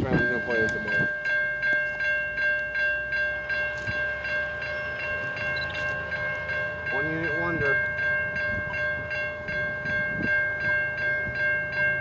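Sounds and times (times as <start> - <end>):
railroad crossing bell ringing: 0.0 - 12.0.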